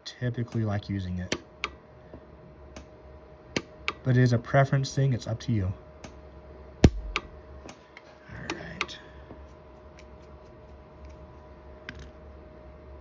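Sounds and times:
welder pulse snaps: 6.8 - 7.8.

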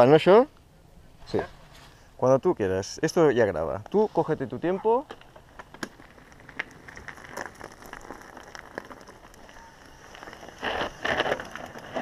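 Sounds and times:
bike tyres crunching on gravel: 3.8 - 12.0.

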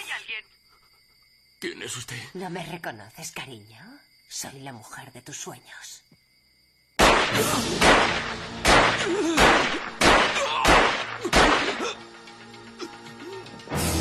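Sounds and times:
handgun shots: 7.0 - 11.8.

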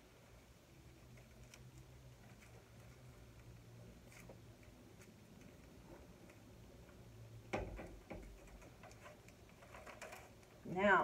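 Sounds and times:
knock: 7.5 - 8.3.

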